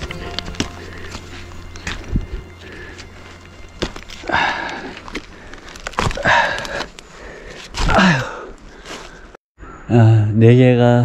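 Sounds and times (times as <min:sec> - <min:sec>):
footsteps on forest floor: 0:00.0 - 0:09.4
heavy breathing: 0:00.0 - 0:09.9.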